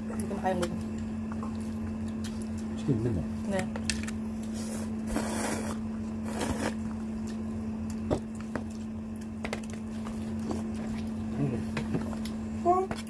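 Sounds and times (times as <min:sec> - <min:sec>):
chewing: 0:00.1 - 0:02.8
person slurping noodles: 0:04.6 - 0:06.8.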